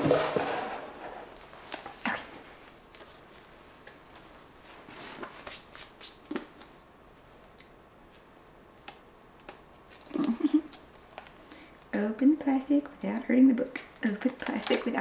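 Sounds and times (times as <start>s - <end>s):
plastic wrapping rustling: 13.8s - 15.0s.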